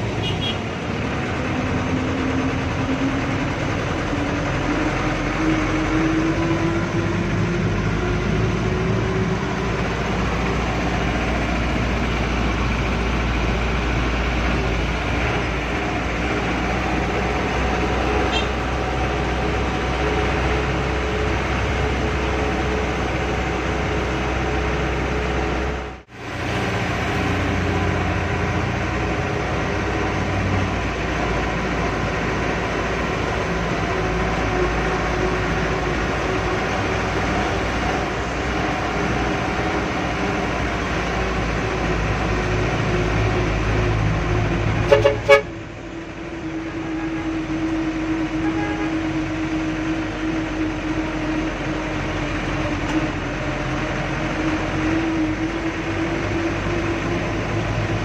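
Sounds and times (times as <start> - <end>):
bus engine rumbling: 0.0 - 58.0
horn toots: 0.1 - 0.7, 18.2 - 18.6, 44.8 - 45.6, 48.3 - 49.2.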